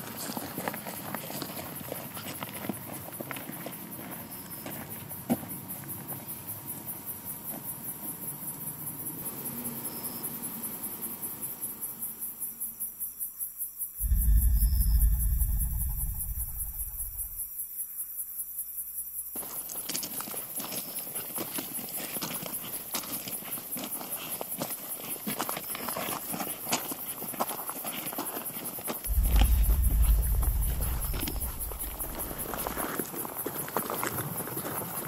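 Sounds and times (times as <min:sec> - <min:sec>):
insects chirping: 0:03.7 - 0:27.8, 0:29.0 - 0:33.4
deep rumble: 0:14.0 - 0:17.5, 0:29.1 - 0:32.8.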